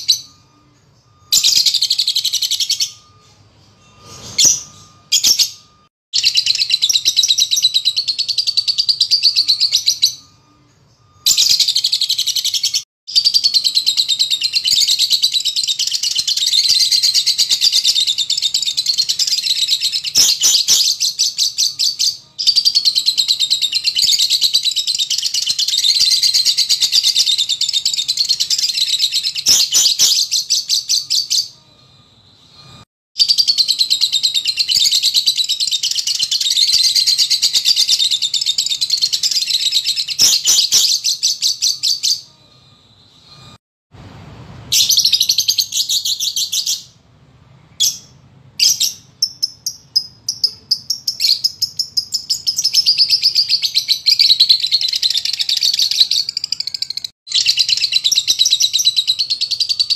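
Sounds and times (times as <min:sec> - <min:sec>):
bird chattering song: 0:47.8 - 0:59.9.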